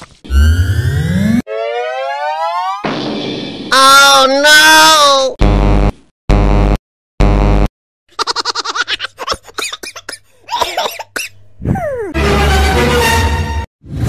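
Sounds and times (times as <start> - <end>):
falling glide sound effect: 0.3 - 3.3
rapid laughter: 8.1 - 9.6.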